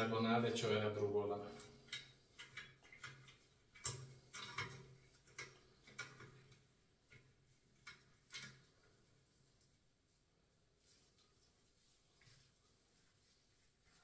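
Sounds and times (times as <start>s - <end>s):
faint small clicks and taps: 1.6s - 9.0s.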